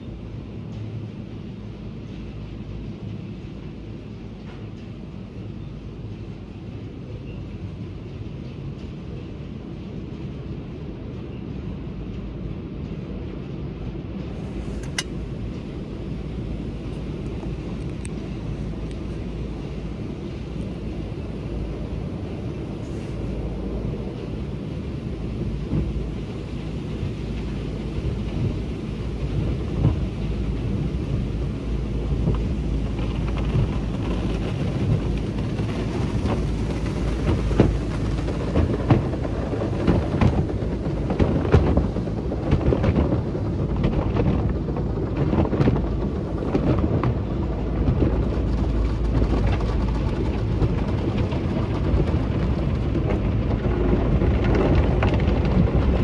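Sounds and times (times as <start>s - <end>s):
car wash equipment rumble: 0.0s - 56.0s
water spray drumming on car: 16.3s - 56.0s.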